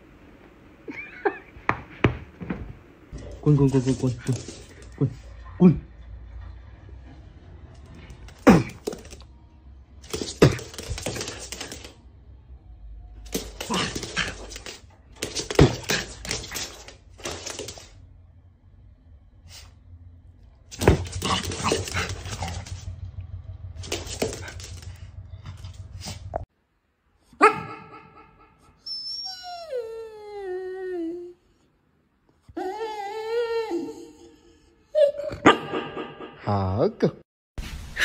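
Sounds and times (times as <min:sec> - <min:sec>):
dog barking and yelping: 0:27.3 - 0:29.6, 0:35.0 - 0:36.2
dog whine-howl: 0:28.8 - 0:31.4, 0:32.5 - 0:35.4.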